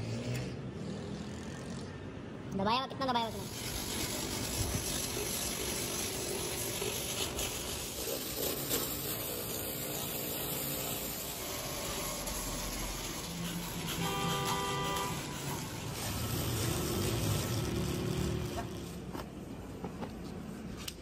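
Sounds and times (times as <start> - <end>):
rotary buffer grinding rubber: 3.3 - 19.2.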